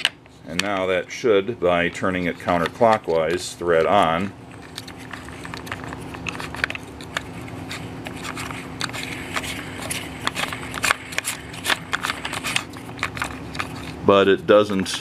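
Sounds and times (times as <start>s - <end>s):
clicks and scrapes of parts: 0.0s - 1.0s, 1.7s - 14.1s
steady low hum: 0.0s - 15.0s.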